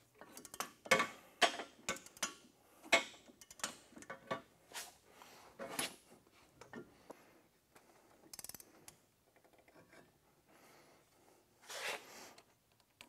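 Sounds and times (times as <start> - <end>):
ratchet wrench clicking: 1.9 - 2.4, 3.4 - 3.8, 8.3 - 8.6.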